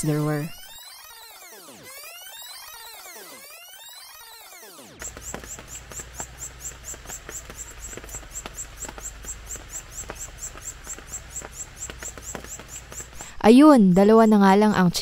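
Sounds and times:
high-pitched chirping: 0:02.0 - 0:14.1
low steady hum: 0:05.0 - 0:15.0.

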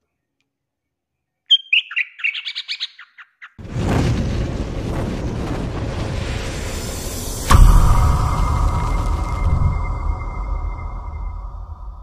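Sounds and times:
bird chirping song: 0:01.2 - 0:03.6
loud noise with deep rumble: 0:03.6 - 0:12.0.

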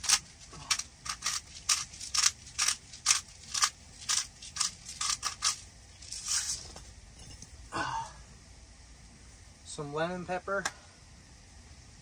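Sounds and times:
salt grinder crunching: 0:00.0 - 0:06.6.

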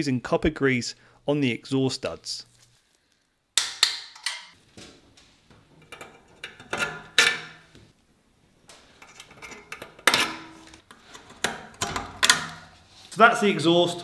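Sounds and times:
pliers knocking on pipes: 0:03.6 - 0:04.6.

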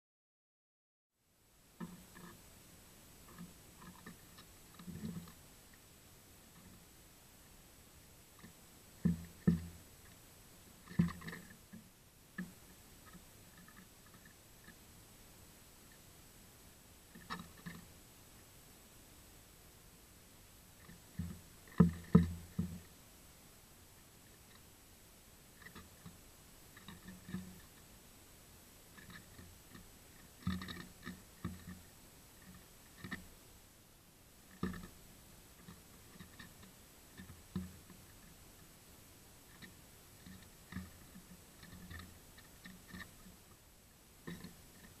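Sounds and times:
bird pecking on wood: 0:01.8 - 0:02.4, 0:03.2 - 0:05.9, 0:08.4 - 0:10.2, 0:10.8 - 0:14.8, 0:17.1 - 0:17.9, 0:20.8 - 0:22.9, 0:25.6 - 0:27.9, 0:28.9 - 0:33.4, 0:34.5 - 0:38.8, 0:39.5 - 0:43.6, 0:44.2 - 0:45.0.

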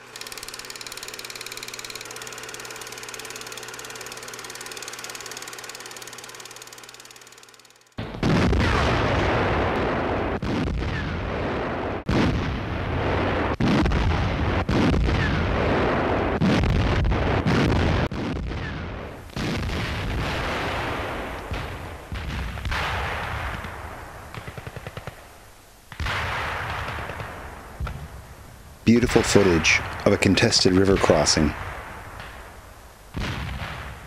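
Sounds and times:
heavy artillery reports: 0:28.8 - 0:31.6.

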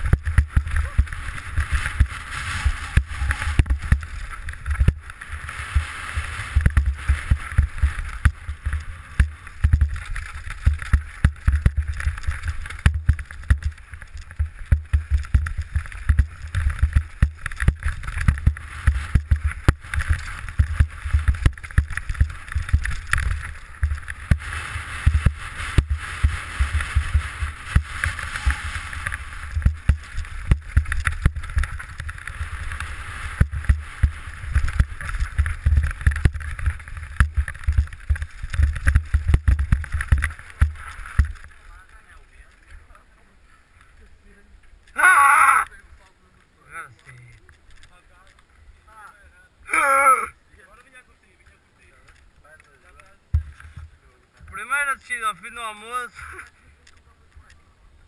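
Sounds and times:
wind on microphone: 0:00.0 - 0:41.5
bike clunking and rattling: 0:00.0 - 0:41.6.

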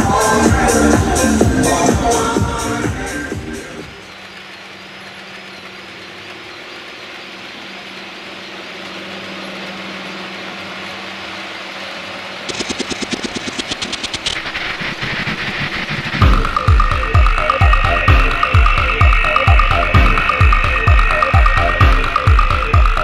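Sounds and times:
model locomotive engine drone: 0:00.0 - 0:23.0.

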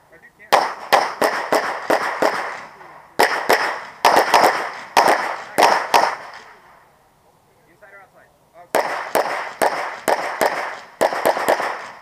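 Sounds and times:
pistol shots with echo: 0:00.5 - 0:06.6, 0:08.7 - 0:12.0.

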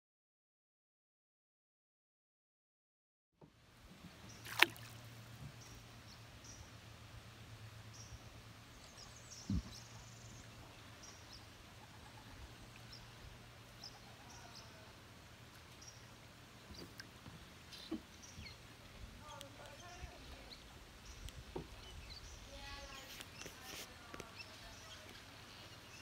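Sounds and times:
soft low thump: 0:09.5 - 0:09.8.

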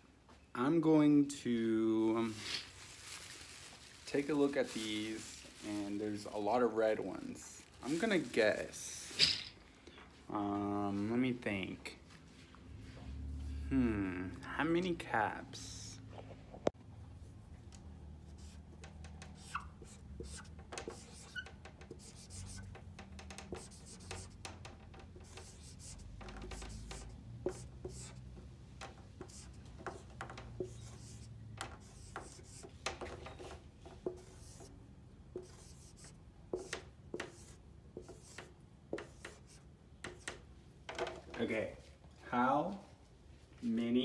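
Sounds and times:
marker writing on a whiteboard: 0:16.7 - 0:40.5.

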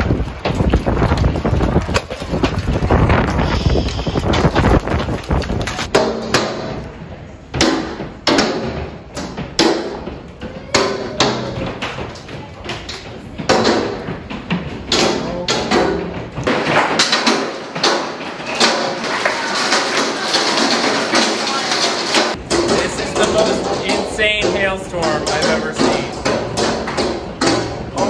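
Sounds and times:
hailstones knocking on house: 0:13.4 - 0:28.0.

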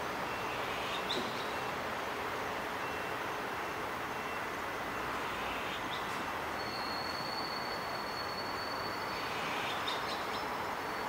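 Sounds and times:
distant city traffic hum: 0:00.0 - 0:11.0.

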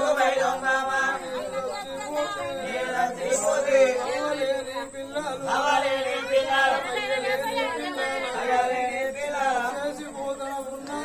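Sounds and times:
men chanting a narrative song: 0:00.0 - 0:11.0.

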